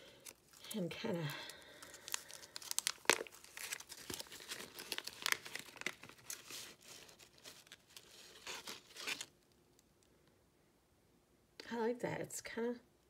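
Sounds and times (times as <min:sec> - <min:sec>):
plastic packet crinkling: 0:00.0 - 0:09.4.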